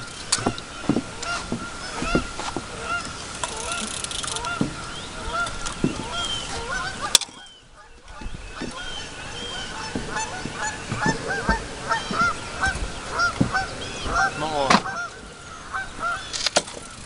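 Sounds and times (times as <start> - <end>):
geese honking: 1.2 - 16.3.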